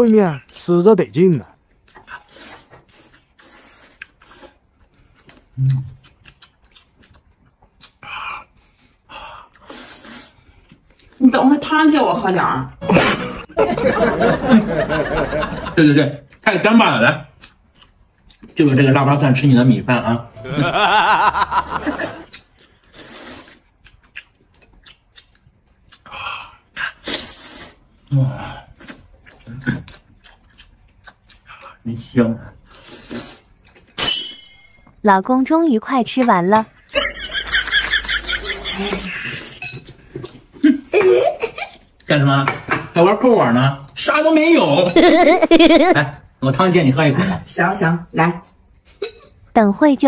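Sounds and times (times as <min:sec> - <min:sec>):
chewing: 0:01.6 - 0:11.2, 0:17.4 - 0:18.6, 0:22.2 - 0:31.9, 0:32.6 - 0:34.0
person slurping noodles: 0:32.7 - 0:33.5.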